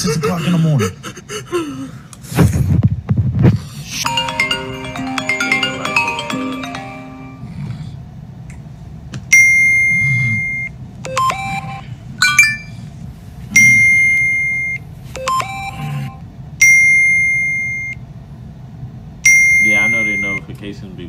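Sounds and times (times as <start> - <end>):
bell-like phone dings: 4.1 - 7.5.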